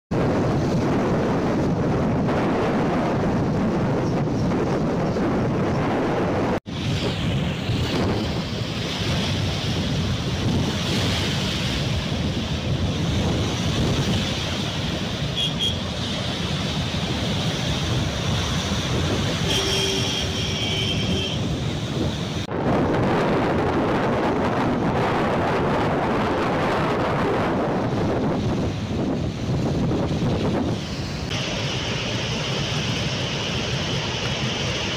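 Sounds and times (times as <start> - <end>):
wind buffeting microphone: 0.1 - 34.9
water roaring through spillway: 6.7 - 19.9, 25.0 - 34.9.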